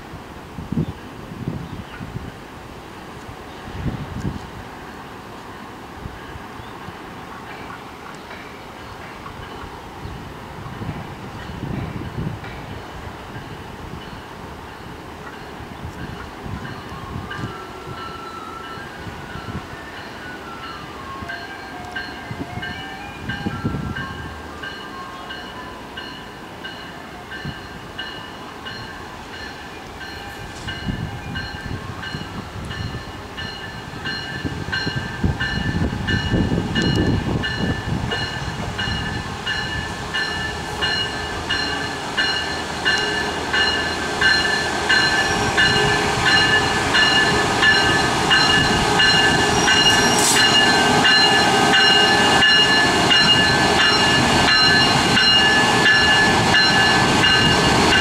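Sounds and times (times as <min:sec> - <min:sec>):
diesel locomotive and train: 0:00.0 - 0:58.0
locomotive bell ringing: 0:13.4 - 0:58.0.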